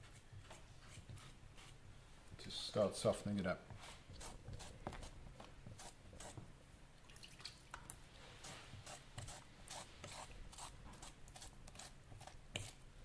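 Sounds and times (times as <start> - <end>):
fork scraping clay: 0.0 - 1.8, 3.7 - 6.4, 8.3 - 12.8.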